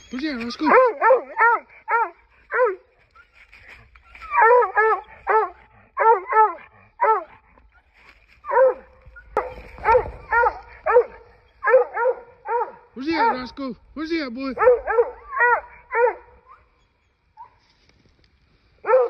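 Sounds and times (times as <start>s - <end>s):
dog barking: 0.6s - 2.8s, 4.4s - 7.3s, 8.5s - 13.5s, 14.6s - 16.7s.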